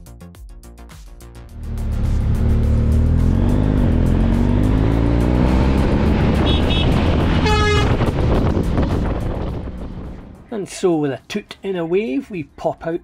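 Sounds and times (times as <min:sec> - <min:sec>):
motorcycle engine revving: 0:01.5 - 0:10.5
truck engine: 0:01.5 - 0:10.6
wind noise: 0:05.7 - 0:10.5
short horn toot: 0:06.4 - 0:08.1.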